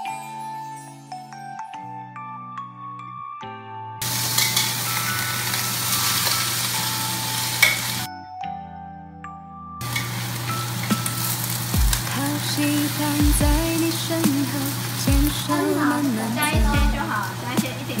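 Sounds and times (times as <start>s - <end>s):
shrimp sizzling in hot oil: 4.0s - 8.1s, 9.8s - 16.3s, 17.0s - 17.9s.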